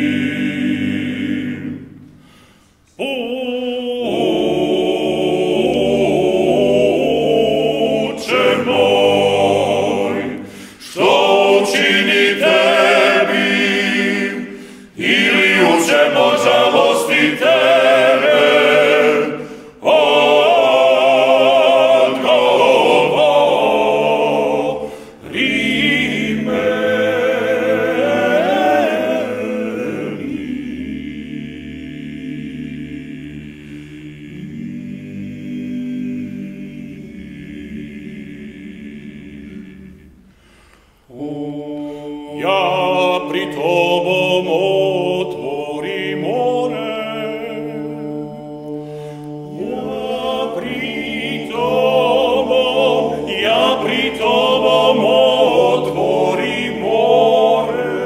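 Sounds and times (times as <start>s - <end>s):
male choir singing a cappella: 0.0s - 58.0s.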